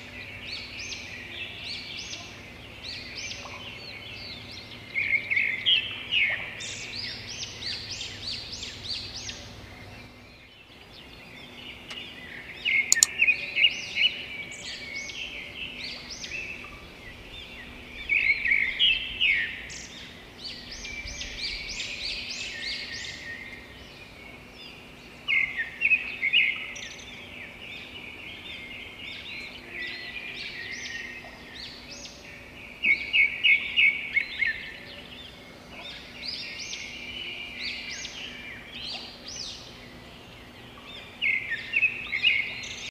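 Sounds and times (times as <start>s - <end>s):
birds chirping: 0.0s - 42.9s.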